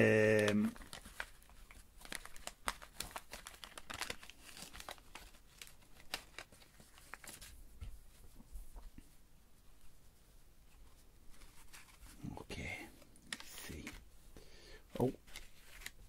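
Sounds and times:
paper wrapper crinkling: 0.0 - 7.6, 13.0 - 14.0, 15.0 - 16.0.

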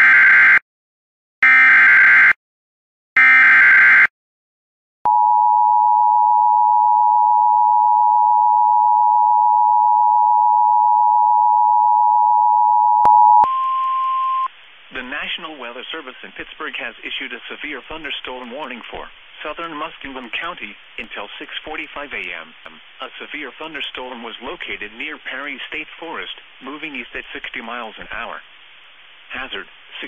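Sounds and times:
single steady tone: 5.1 - 14.5
two-tone attention signal: 5.1 - 14.5.

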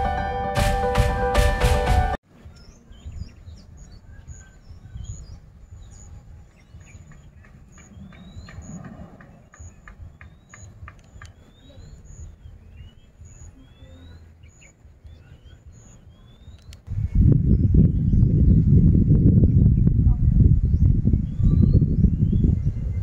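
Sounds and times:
small birds chirping: 2.3 - 23.0
low rumble: 16.8 - 23.0.

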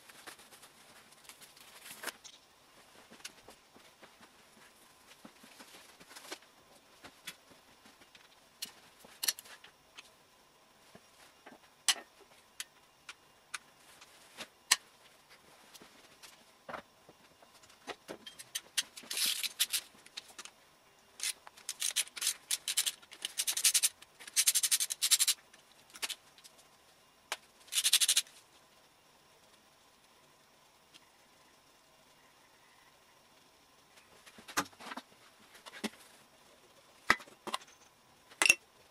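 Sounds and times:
rapid ratchet clicking: 21.2 - 25.4, 27.7 - 28.2.

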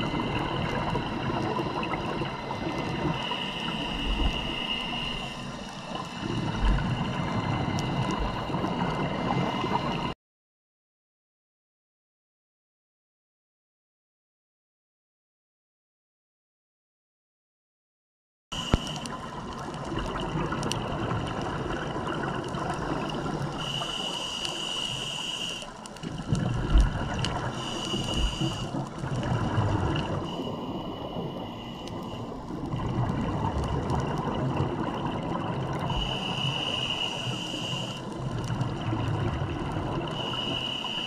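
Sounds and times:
gurgling exhaled bubbles: 0.0 - 10.1, 18.8 - 24.0, 25.8 - 41.0
underwater wash: 0.0 - 10.2, 18.6 - 41.0
regulator hissing on inhale: 3.0 - 10.0, 18.6 - 19.3, 23.4 - 26.0, 27.4 - 29.0, 30.0 - 32.5, 35.8 - 38.2, 40.0 - 41.0.

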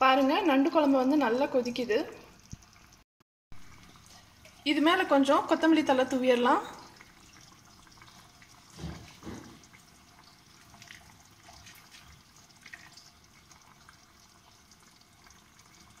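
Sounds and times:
curry bubbling in a pan: 3.6 - 16.0
soft knocks: 8.7 - 9.6.

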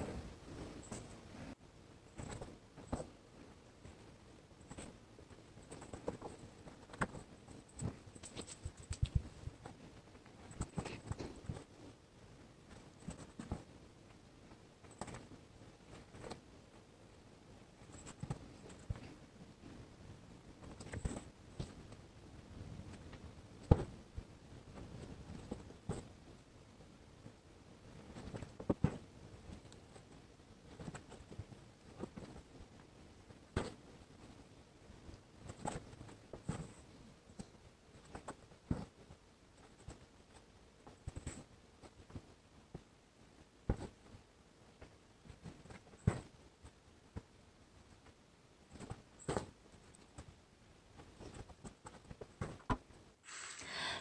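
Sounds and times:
needle and thread through fabric: 0.0 - 54.0
needle drawn through fabric: 53.2 - 54.0.

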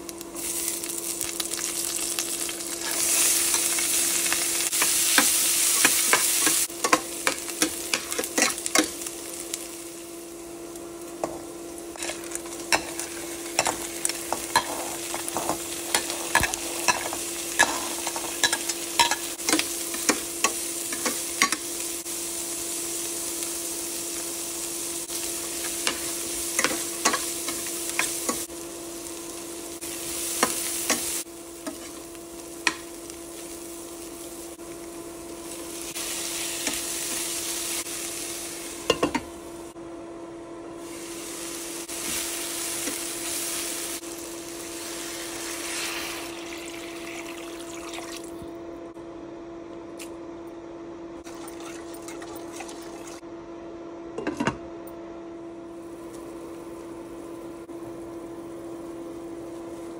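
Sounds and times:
vegetables sizzling in a pan: 0.0 - 39.8, 40.8 - 48.4, 55.7 - 59.9
steady hum: 0.0 - 51.2
metal spoon scraping a pan: 12.0 - 21.6.

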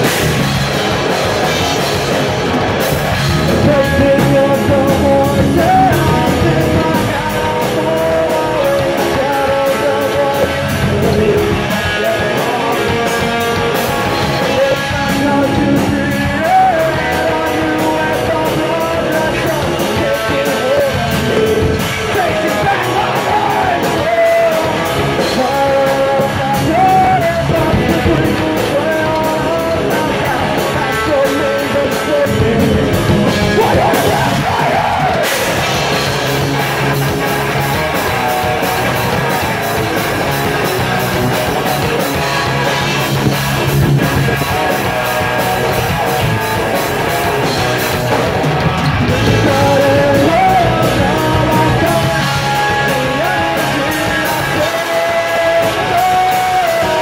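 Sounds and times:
bass guitar: 0.0 - 57.0
drum beat: 0.0 - 57.0
electric guitars: 0.0 - 57.0
person singing and yelling: 3.2 - 57.0.

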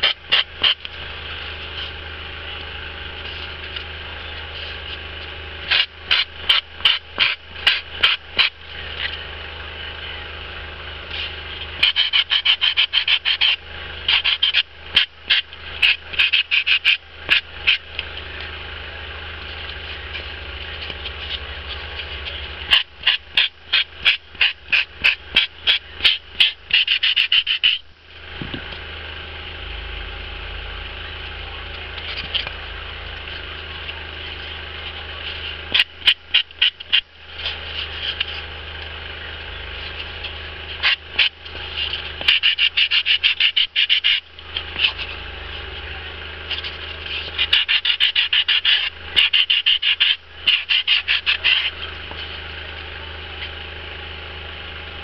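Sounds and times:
low steady hum: 0.0 - 55.0
file rasping on foam: 11.8 - 17.8, 23.0 - 27.8, 42.2 - 44.2, 47.4 - 51.8.

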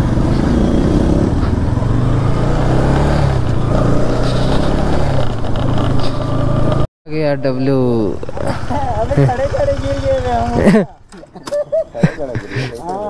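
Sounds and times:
motorcycle engine running: 0.0 - 6.9, 7.8 - 11.2.

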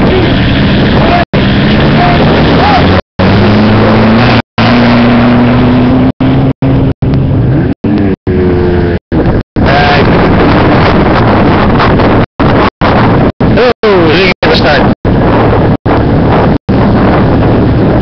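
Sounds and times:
engine revving: 0.0 - 13.7
race car engines running: 0.0 - 18.0.

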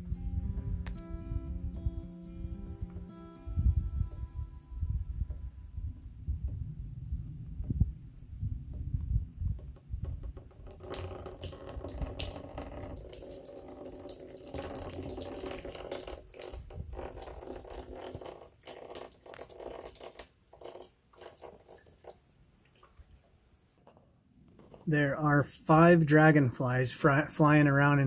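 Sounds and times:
wind buffeting microphone: 0.0 - 13.1, 16.4 - 17.9
water running through gutter: 9.5 - 23.9
water pattering on steel roof: 9.5 - 25.1.

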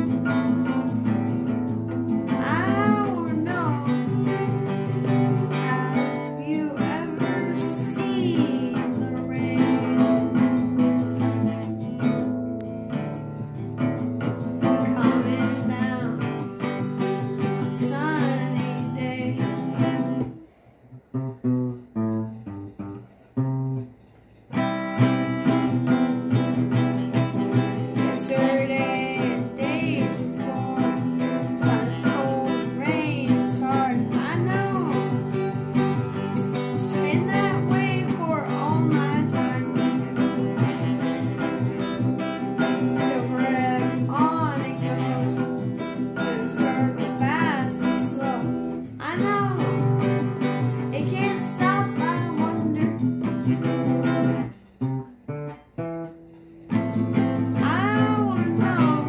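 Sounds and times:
boy singing: 0.0 - 0.9, 2.3 - 10.6, 14.6 - 16.5, 17.4 - 20.4, 27.5 - 35.6, 36.3 - 53.4, 57.6 - 59.0
acoustic guitar strummed: 0.0 - 59.0.

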